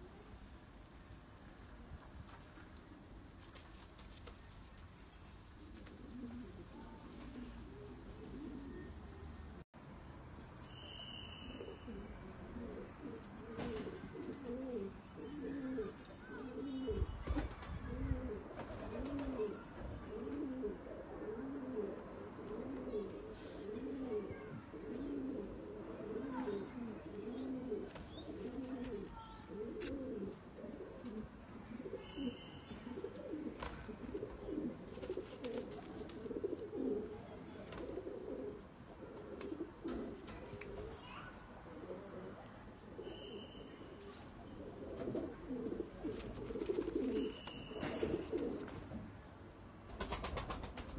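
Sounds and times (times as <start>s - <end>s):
pigeons cooing: 5.6s - 9.0s, 11.6s - 17.0s, 17.8s - 48.8s.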